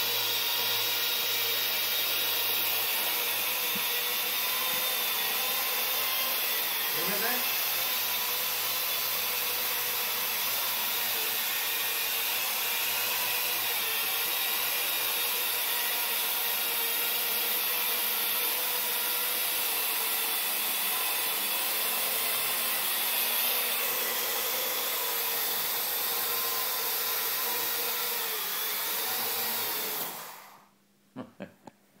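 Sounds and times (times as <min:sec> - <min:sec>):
quadcopter motors whining: 0:00.0 - 0:30.6.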